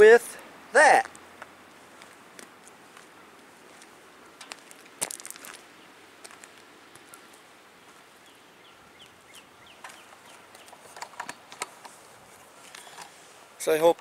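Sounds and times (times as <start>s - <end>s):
footsteps on gravel: 1.0s - 8.2s
bird chirps: 7.0s - 11.0s.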